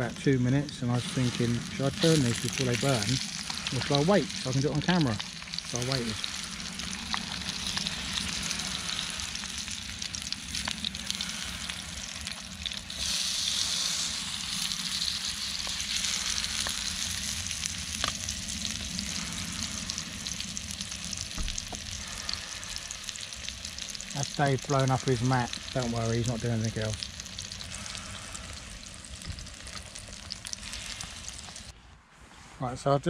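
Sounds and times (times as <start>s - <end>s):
burger patties sizzling in a pan: 0.0s - 31.7s
fat popping: 21.2s - 22.1s.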